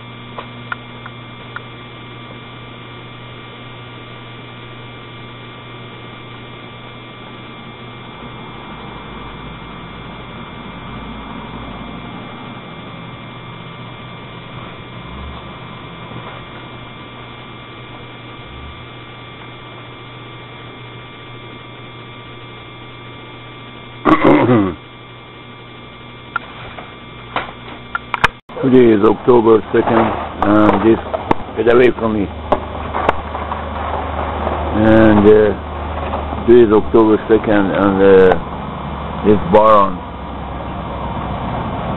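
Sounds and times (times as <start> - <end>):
steady electrical hum: 0.0 - 41.9.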